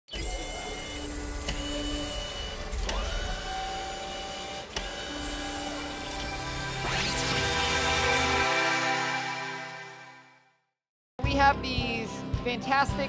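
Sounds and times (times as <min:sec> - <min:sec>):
small electric motors whining: 0:00.1 - 0:09.1
sharp clicks: 0:01.0 - 0:06.4.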